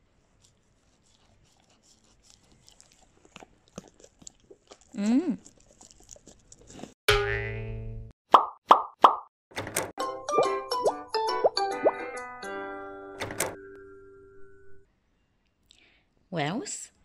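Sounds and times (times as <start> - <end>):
dog chewing and crunching: 0.4 - 7.0.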